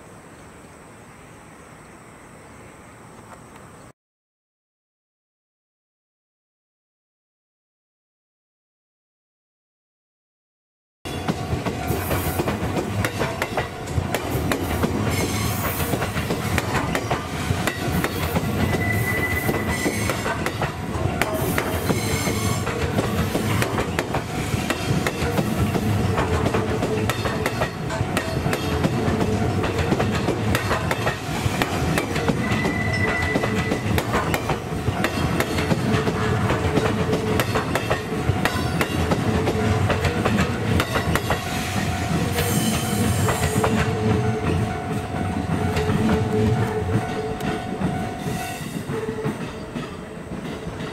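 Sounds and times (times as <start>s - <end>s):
high wheel squeals: 15.0s - 15.9s, 18.2s - 20.3s, 21.4s - 22.7s, 31.3s - 34.0s.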